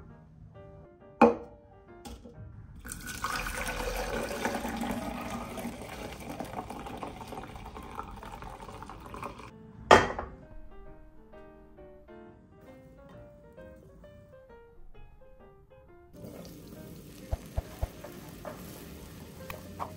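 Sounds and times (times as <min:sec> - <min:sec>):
pot knocking on stove grate: 0:01.2 - 0:02.3, 0:09.9 - 0:10.4, 0:17.3 - 0:18.8
liquid pouring through a sieve: 0:02.8 - 0:09.5.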